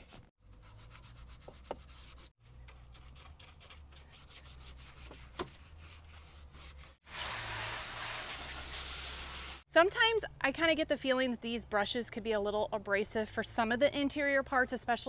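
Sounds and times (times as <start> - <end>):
brush scrubbing plastic: 0.0 - 9.6.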